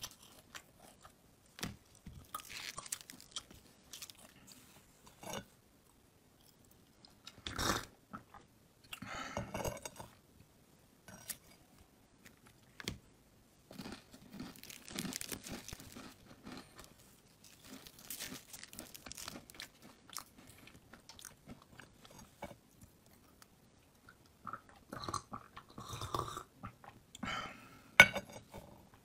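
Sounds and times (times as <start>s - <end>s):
slime crackling: 14.5s - 16.0s, 17.3s - 19.8s.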